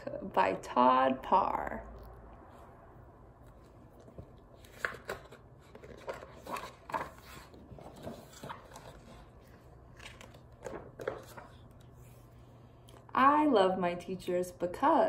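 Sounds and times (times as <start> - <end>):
book pages rustling: 3.4 - 12.5.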